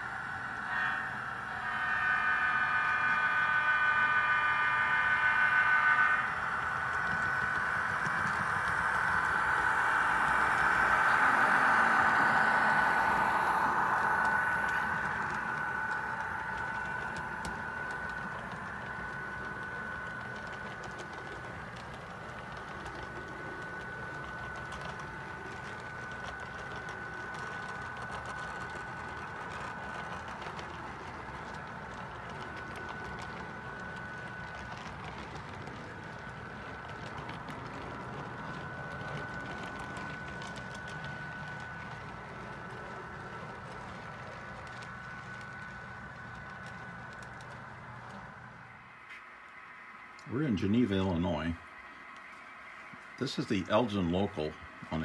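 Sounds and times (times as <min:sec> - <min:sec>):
model train whine and clatter: 0:00.0 - 0:55.0
model train horn: 0:00.1 - 0:09.7.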